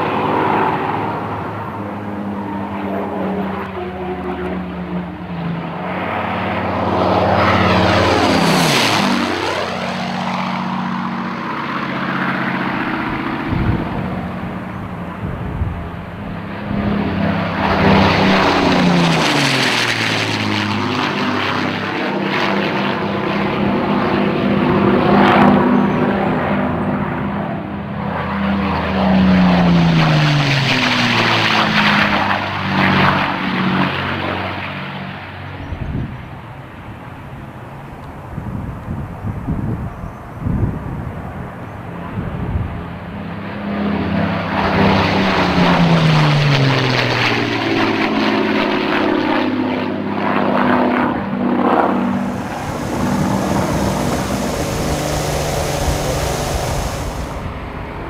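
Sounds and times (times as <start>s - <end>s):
propeller aircraft passing: 0.0s - 58.0s.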